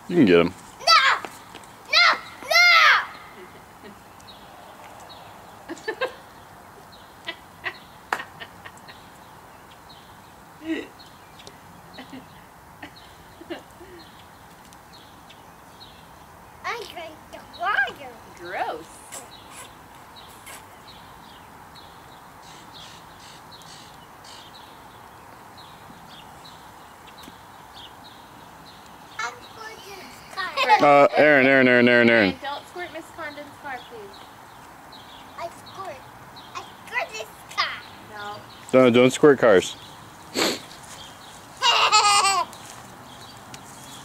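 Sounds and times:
faint outdoor hum: 0.0 - 44.0
small birds chirping: 0.0 - 44.0
toddler squeaks and grunts: 19.0 - 20.7.

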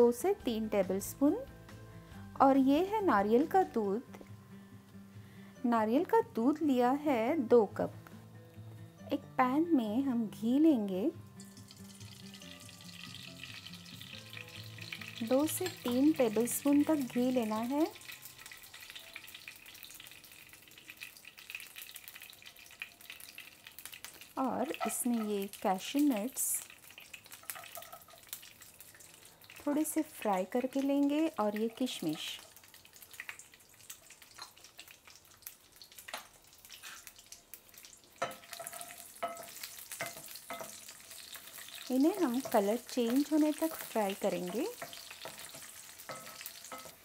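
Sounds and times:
ghee sizzling in a pan: 0.0 - 47.0
wooden spatula knocking a pan: 43.8 - 47.0.

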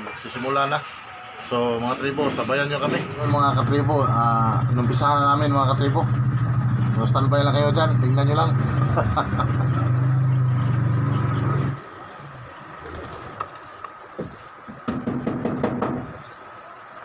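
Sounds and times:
low engine hum: 3.0 - 14.8.

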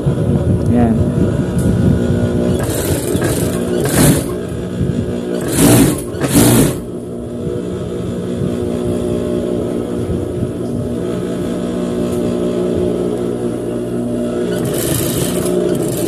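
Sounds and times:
sewing machine motor hum: 2.4 - 4.7, 5.3 - 6.9, 14.1 - 16.0.

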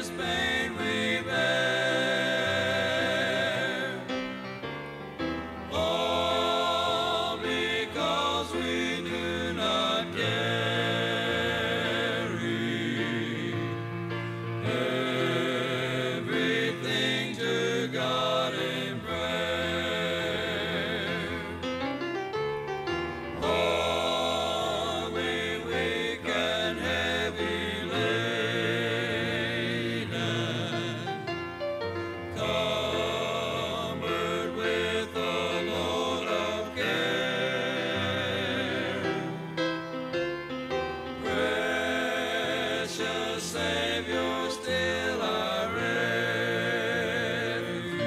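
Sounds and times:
vocal group singing a hymn: 0.0 - 21.9, 23.3 - 40.1, 41.0 - 48.0
musical accompaniment: 0.0 - 48.0.

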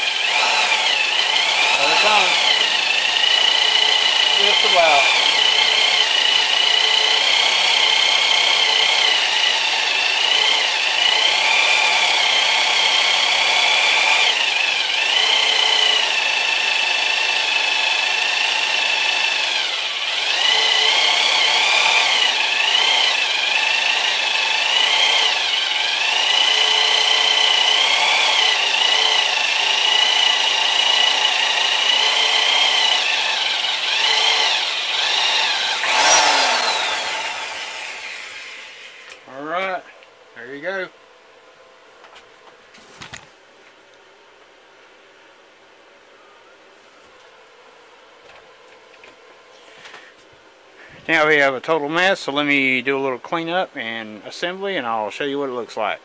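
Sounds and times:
electric drill hole saw cutting metal: 0.0 - 39.2.

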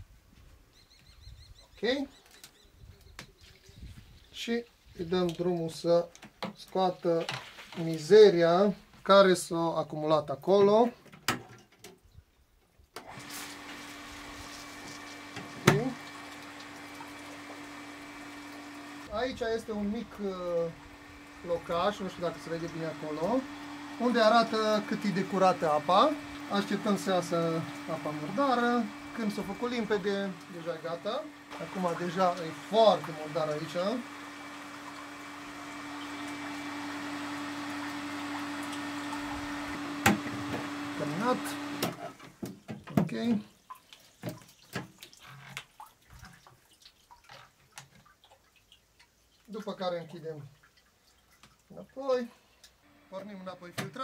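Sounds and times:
pool filter pump humming: 13.0 - 54.0
water rushing through filter: 13.1 - 42.4.

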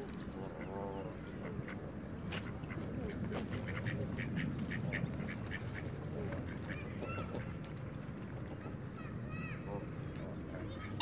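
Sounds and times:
ducks quacking: 2.4 - 7.6.

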